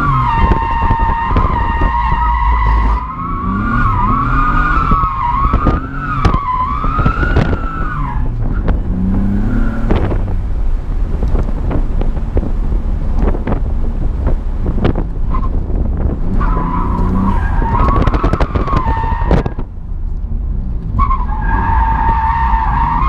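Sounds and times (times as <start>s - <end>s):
car tyres squealing: 0.0s - 10.4s, 14.7s - 19.8s, 20.8s - 23.0s
car engine running hard: 0.0s - 23.0s.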